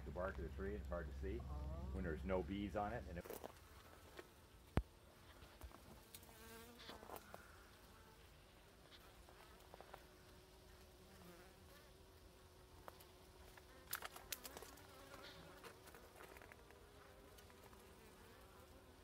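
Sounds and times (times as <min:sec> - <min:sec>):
bees buzzing: 0:06.1 - 0:08.2.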